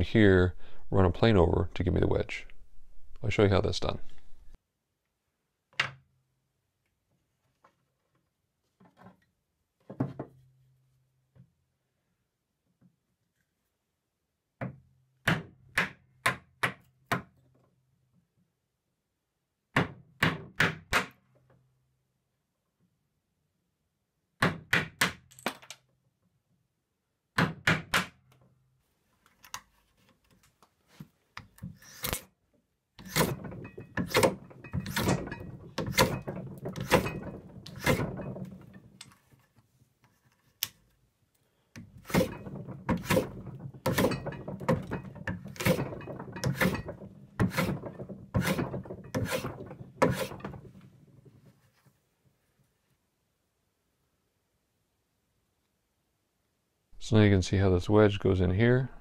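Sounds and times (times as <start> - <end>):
hand plane shaving wood: 33.0 - 35.2, 42.0 - 50.6.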